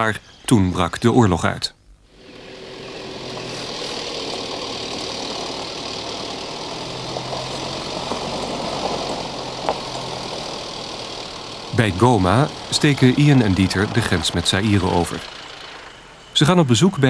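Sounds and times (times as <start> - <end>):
vehicle engine running: 2.0 - 17.0.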